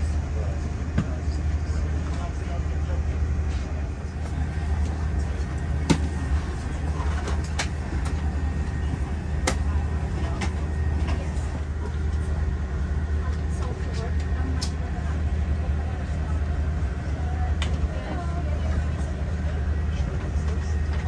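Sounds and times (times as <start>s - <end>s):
airliner cabin rumble: 0.0s - 21.0s.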